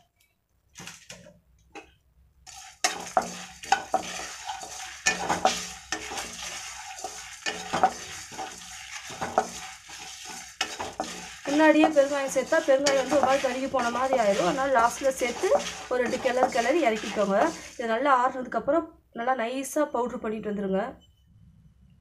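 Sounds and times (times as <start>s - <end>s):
dry seeds scraping in pan: 2.4s - 18.2s.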